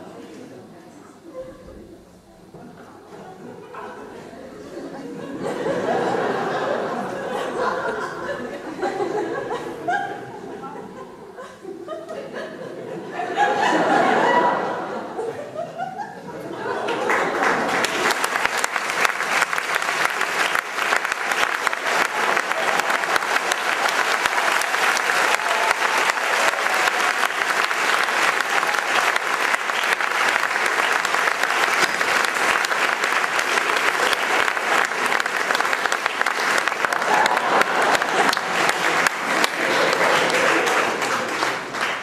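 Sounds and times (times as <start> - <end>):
audience applauding: 16.6 - 42.0.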